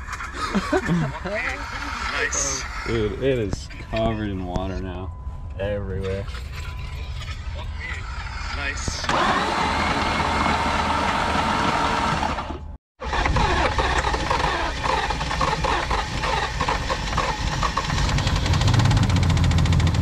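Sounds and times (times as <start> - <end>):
engine running rough with knocking: 9.1 - 20.0.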